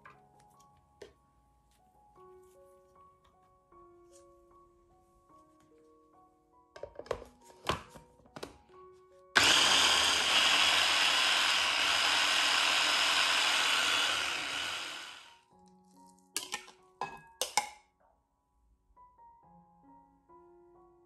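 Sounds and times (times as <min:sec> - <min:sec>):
electric food chopper whirring: 0:09.4 - 0:15.4.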